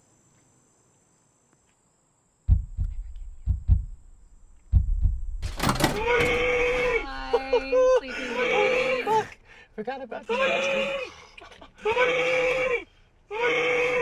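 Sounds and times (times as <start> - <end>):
dull low thumps inside car trunk: 2.5 - 4.0, 4.7 - 5.5
man's muffled screaming: 6.0 - 9.3, 11.8 - 14.0.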